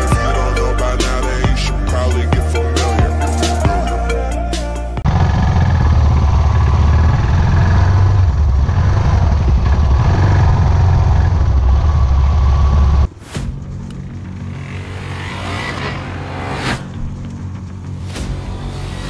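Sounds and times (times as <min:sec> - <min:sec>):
music: 0:00.0 - 0:05.0, 0:13.1 - 0:19.0
motorcycle engine running: 0:05.0 - 0:18.0.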